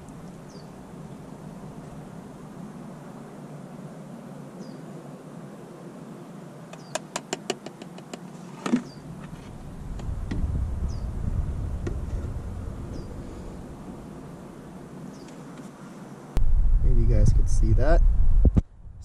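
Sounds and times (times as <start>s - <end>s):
low rumble: 9.0s - 14.7s, 16.4s - 19.0s.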